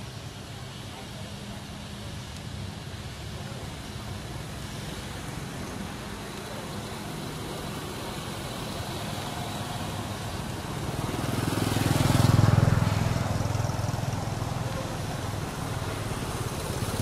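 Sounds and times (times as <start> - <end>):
passing vehicle engine drone: 4.2 - 17.0.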